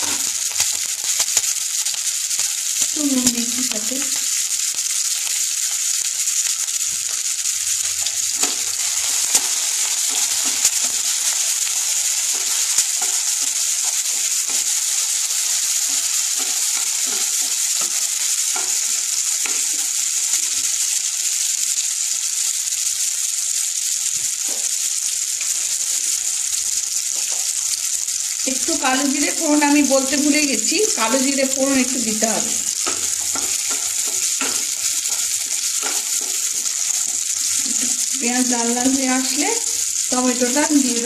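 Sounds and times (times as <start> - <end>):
onions sizzling in oil: 0.0 - 41.0
spatula scraping and tapping: 32.8 - 37.1.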